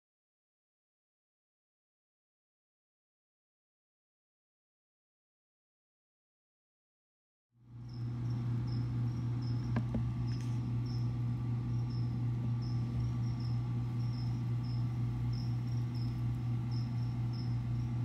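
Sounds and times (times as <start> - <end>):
loud low hum: 7.6 - 18.0
cricket chirping: 7.7 - 18.0.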